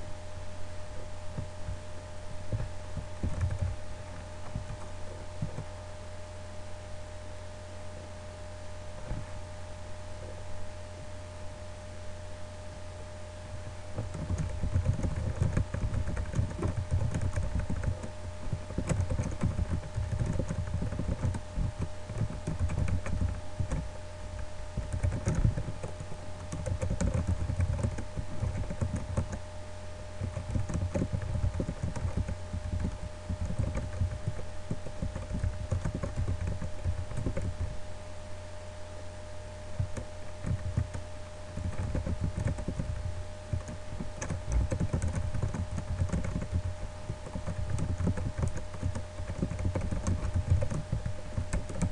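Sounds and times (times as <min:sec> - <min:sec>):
steady low hum: 0:00.0 - 0:51.9
keyboard keystroke clicks: 0:41.6 - 0:51.9.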